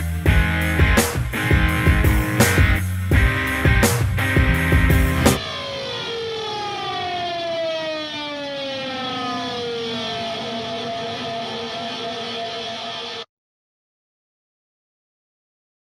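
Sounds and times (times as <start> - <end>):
tone gliding down in pitch: 5.2 - 13.3.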